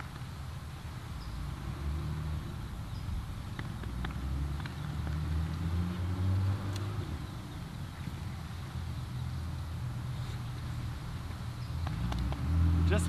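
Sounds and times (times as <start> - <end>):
distant engine rumble: 0.0 - 13.0
faint clicks: 11.7 - 12.5.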